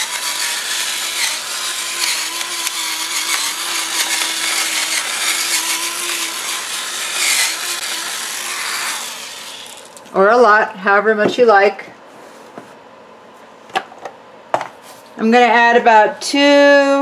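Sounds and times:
electric pepper mill grinding: 0:00.0 - 0:10.2.

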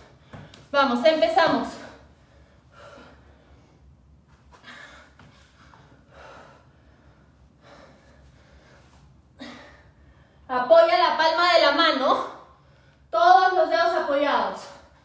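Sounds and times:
woman breathing hard: 0:01.9 - 0:10.5.

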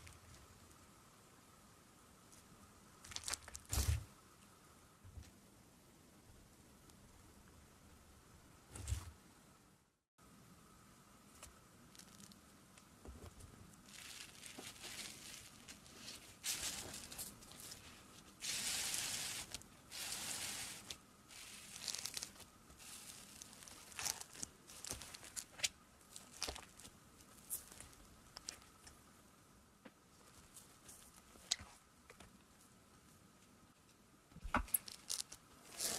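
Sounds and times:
slime crackling and tearing: 0:03.0 - 0:03.7, 0:18.4 - 0:28.7.

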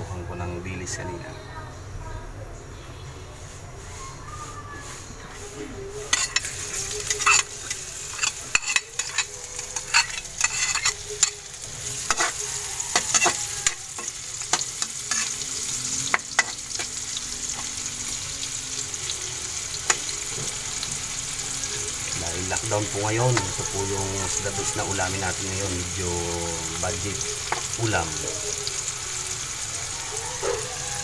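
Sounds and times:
garlic and onion sizzling in oil: 0:02.8 - 0:31.0
metal spoon scraping a wok: 0:05.4 - 0:17.7.

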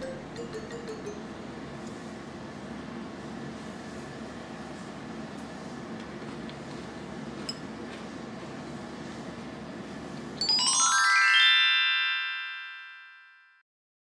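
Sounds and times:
descending chime-like notes: 0:10.4 - 0:13.3.

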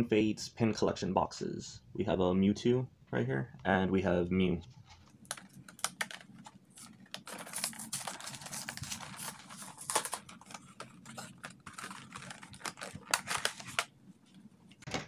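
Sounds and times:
plastic and cardboard crackling: 0:04.8 - 0:15.0.

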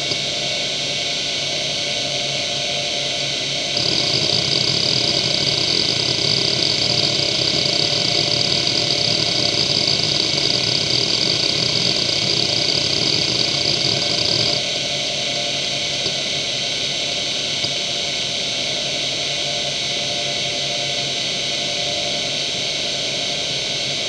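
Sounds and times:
hard drive head chatter: 0:00.0 - 0:16.4
hard drive spindle hum: 0:00.0 - 0:24.0.

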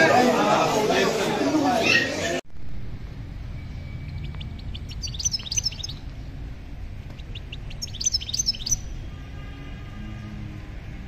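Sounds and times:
low steady rumble: 0:02.5 - 0:09.2
songbird chirping: 0:03.4 - 0:06.4, 0:07.0 - 0:09.0.

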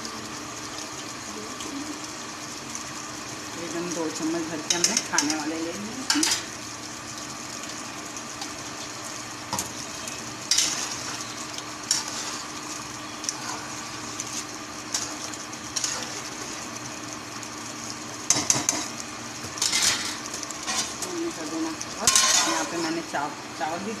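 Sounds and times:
gravy sizzling in a pot: 0:00.0 - 0:24.0
spoon scraping against pot: 0:22.0 - 0:22.8.

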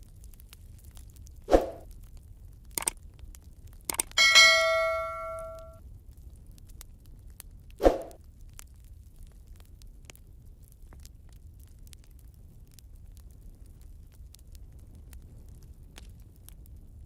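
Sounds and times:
mouse clicks: 0:03.9 - 0:04.2
bell ding: 0:04.2 - 0:05.8.

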